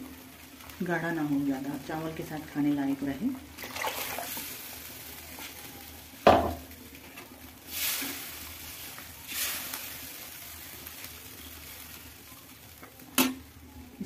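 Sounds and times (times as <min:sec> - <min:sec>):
faint sizzle: 0:00.0 - 0:14.0.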